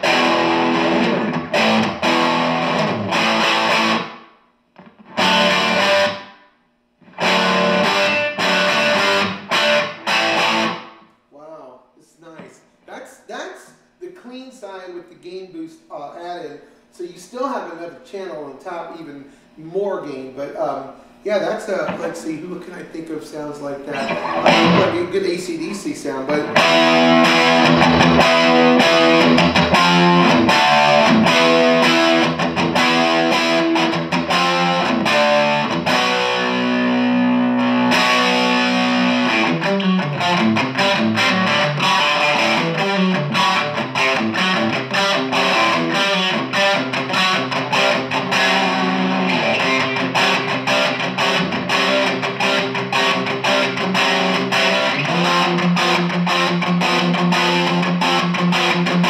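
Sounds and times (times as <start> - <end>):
picked guitar notes: 0.0 - 4.2, 4.8 - 6.4, 7.0 - 13.0, 23.7 - 59.0
distorted electric guitar chords: 0.0 - 11.5, 23.9 - 25.4, 26.3 - 59.0.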